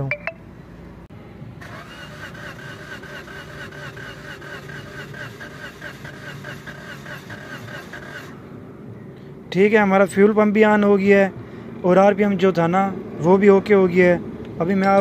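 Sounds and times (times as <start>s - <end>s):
engine cranking without firing: 1.6s - 8.4s.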